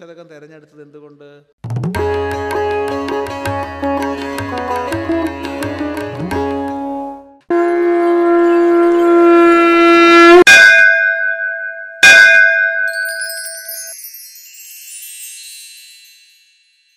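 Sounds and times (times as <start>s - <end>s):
long blown horn note: 7.5s - 10.5s
bell-like strikes: 10.5s - 14.2s
high shimmering chimes: 12.8s - 16.9s.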